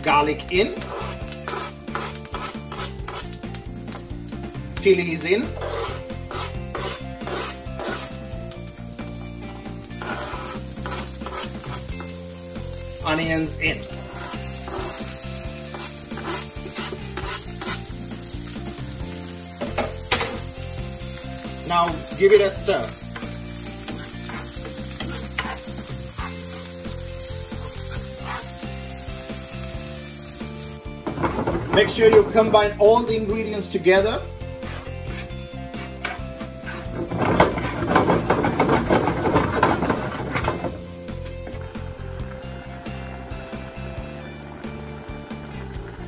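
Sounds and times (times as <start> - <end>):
seeds sizzling and popping in oil: 0.0 - 32.4, 34.4 - 46.0
spatula scraping a pan: 0.7 - 3.4, 5.4 - 8.3, 9.8 - 12.3, 13.7 - 18.8, 19.6 - 29.8, 34.4 - 41.4.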